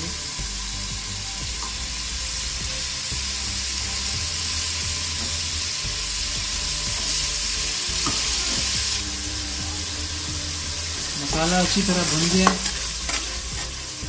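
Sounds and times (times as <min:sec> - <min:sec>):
masala sizzling in oil: 0:00.0 - 0:14.0
metal spoon stirring in pot: 0:10.9 - 0:14.0.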